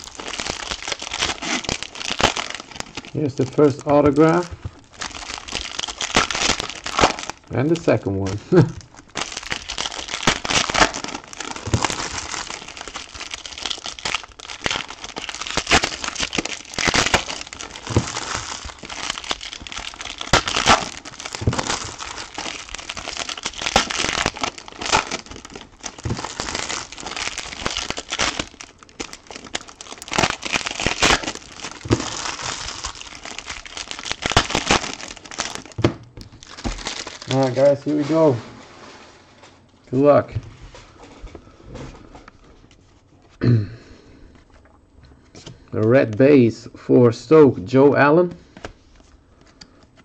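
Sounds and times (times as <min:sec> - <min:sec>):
foil wrappers crinkling: 0:00.0 - 0:38.4.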